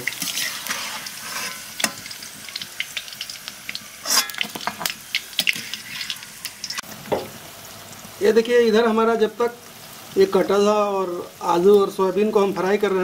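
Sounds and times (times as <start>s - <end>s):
oil crackling and popping: 0.0s - 7.4s
food sizzling in hot oil: 0.0s - 13.0s.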